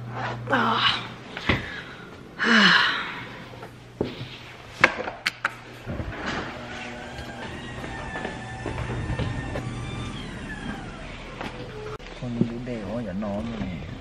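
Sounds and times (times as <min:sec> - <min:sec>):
person sighing: 0:00.5 - 0:03.4.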